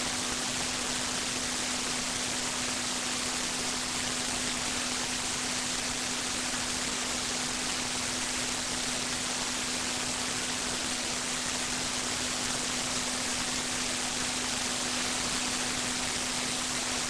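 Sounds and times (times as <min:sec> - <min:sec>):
steady high hiss: 0:00.0 - 0:17.0.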